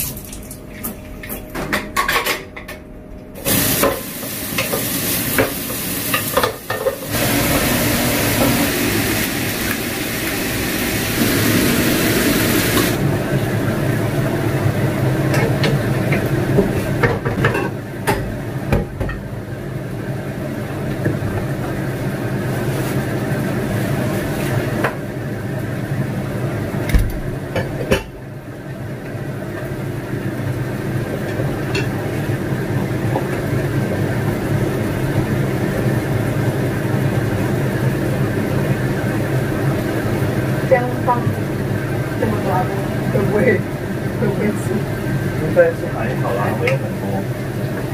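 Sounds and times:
range hood fan humming: 0.0 - 47.9
dishes clinking and knocking: 1.5 - 2.8.

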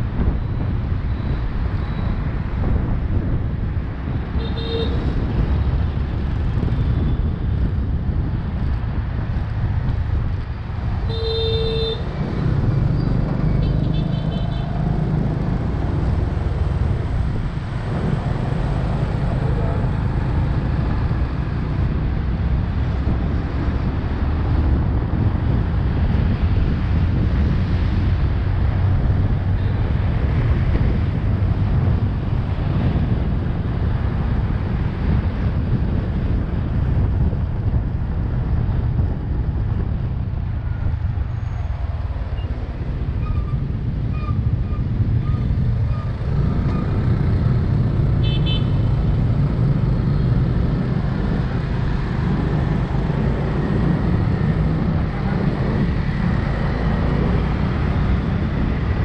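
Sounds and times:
wind and road noise: 0.0 - 59.0.

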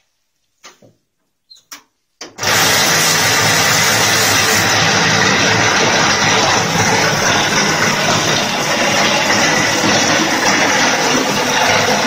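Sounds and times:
plastering machine running: 2.4 - 12.0.

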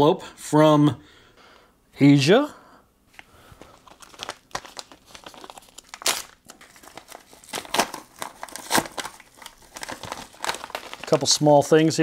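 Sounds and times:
envelope packaging crinkling: 3.1 - 12.0.

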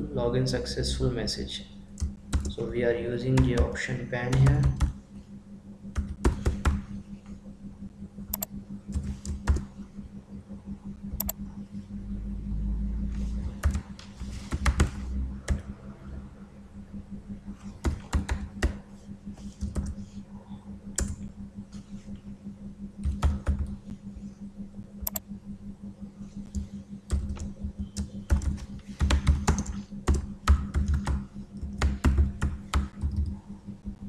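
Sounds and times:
steady low hum: 0.0 - 34.0
typing on computer keyboard: 3.3 - 5.0, 26.5 - 33.4.

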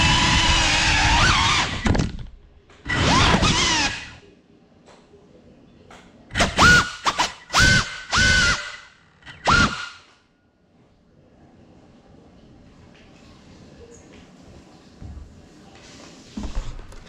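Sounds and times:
drone motors whining: 0.0 - 4.2.

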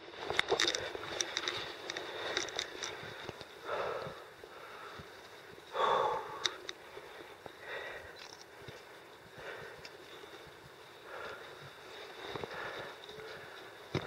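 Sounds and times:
small clicks: 0.2 - 3.6, 6.4 - 6.8, 7.4 - 9.0
person breathing heavily: 1.9 - 13.9.

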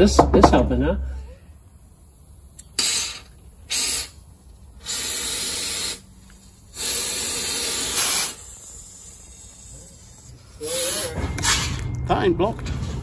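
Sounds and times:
compressed air blow gun bursts: 2.1 - 11.2.

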